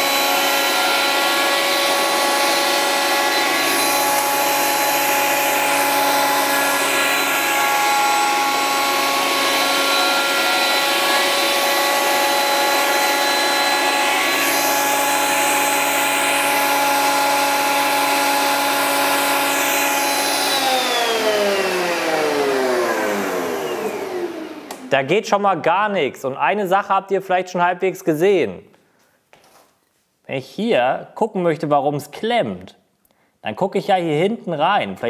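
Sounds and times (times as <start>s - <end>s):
planer whining: 0.0s - 25.0s.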